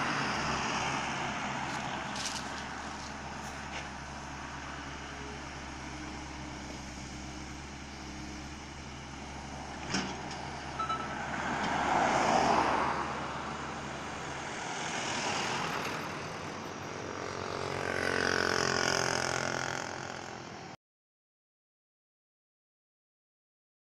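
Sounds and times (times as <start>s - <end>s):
motorcycle passing: 0.0s - 9.8s, 10.5s - 20.8s
vehicles passing by: 0.0s - 20.8s
diesel engine idling: 1.0s - 11.3s.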